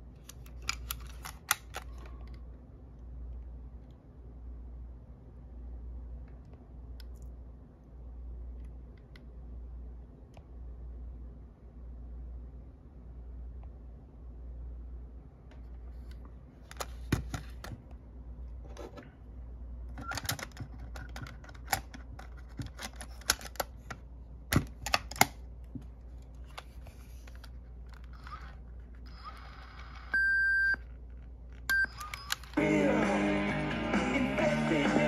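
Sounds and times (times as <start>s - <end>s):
cassette seated in compartment: 0.0s - 4.0s, 15.4s - 35.0s.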